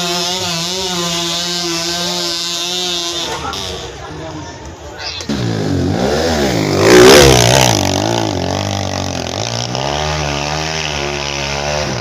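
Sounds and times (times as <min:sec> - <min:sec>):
motorcycle engine revving hard: 0:05.3 - 0:12.0.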